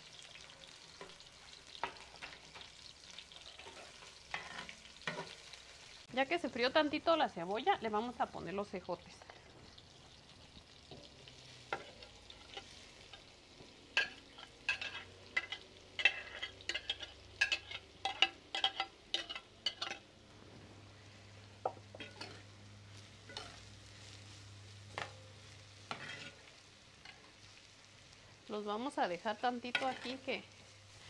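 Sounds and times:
onions sizzling in oil: 0.0s - 31.0s
spatula scraping ceramic bowl: 25.9s - 26.4s.

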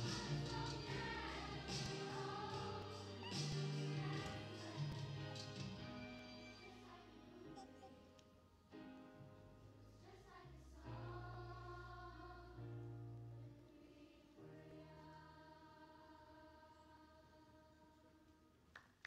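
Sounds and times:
children's choir singing: 0.0s - 7.9s, 10.0s - 12.9s, 13.6s - 18.1s
low instrumental accompaniment: 0.0s - 10.0s.

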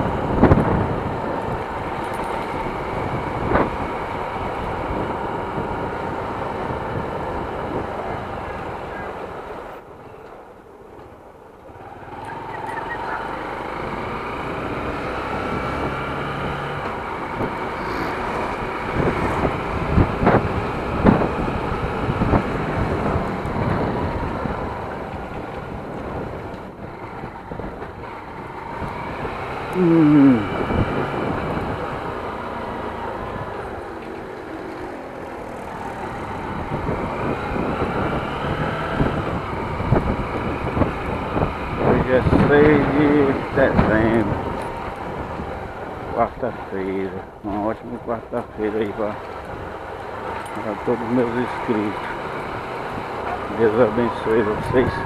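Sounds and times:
wind noise on microphone: 0.0s - 9.0s, 14.5s - 46.5s.

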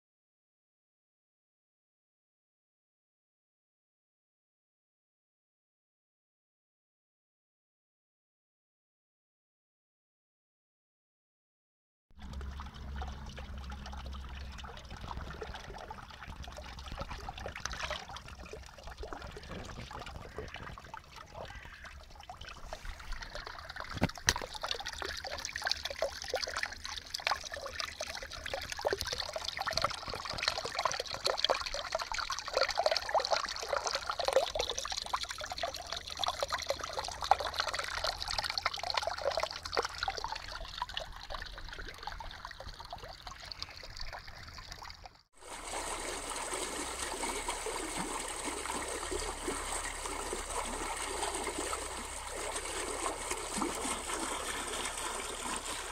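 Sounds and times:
water splashing over rocks: 12.2s - 55.9s.

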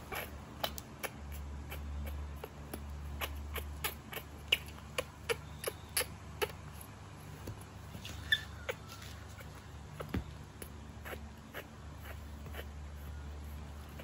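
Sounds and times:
monkey mouth clicking and smacking: 0.1s - 6.6s.

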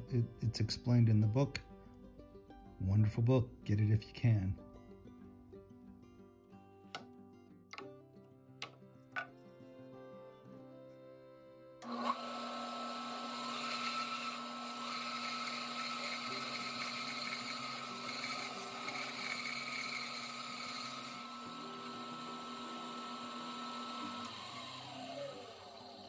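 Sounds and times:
bandsaw blade winding down: 11.8s - 26.0s
bandsaw cutting wood: 11.8s - 26.0s.

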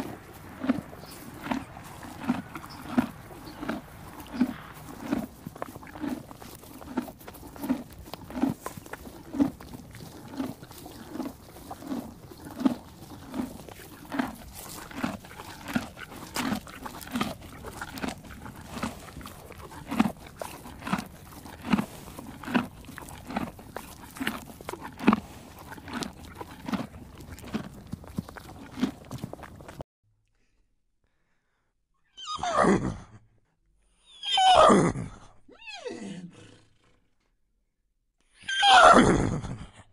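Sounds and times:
horse chewing: 0.0s - 29.8s.

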